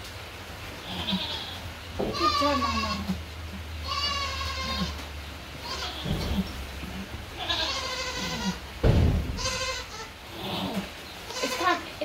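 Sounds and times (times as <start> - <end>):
goat bleating: 0.8 - 3.2, 3.8 - 11.9
dull thump: 8.8 - 9.7.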